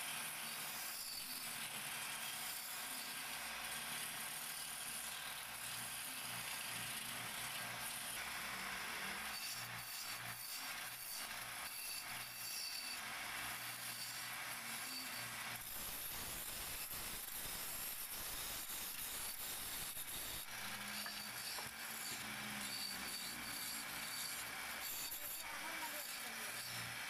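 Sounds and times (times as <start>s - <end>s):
chisel scraping spinning wood: 19.6s - 27.0s.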